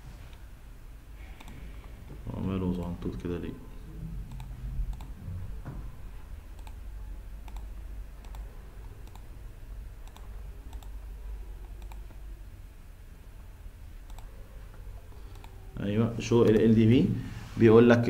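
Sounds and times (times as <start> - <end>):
low steady hum: 0.0 - 18.0
computer mouse clicks: 1.3 - 1.8, 4.3 - 5.2, 6.5 - 6.8, 7.4 - 9.3, 10.0 - 12.3, 14.0 - 15.6, 16.4 - 16.7.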